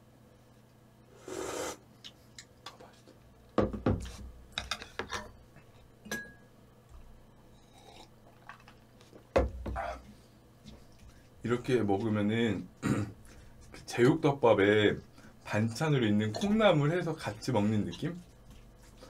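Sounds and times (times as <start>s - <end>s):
spoon clinking against a bowl: 6.1s - 6.4s.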